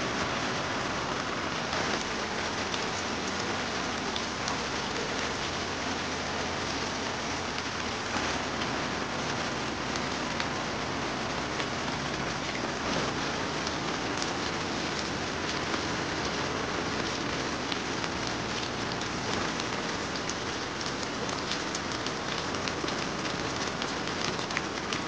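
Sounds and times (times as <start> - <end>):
heavy rain falling: 0.0 - 25.0.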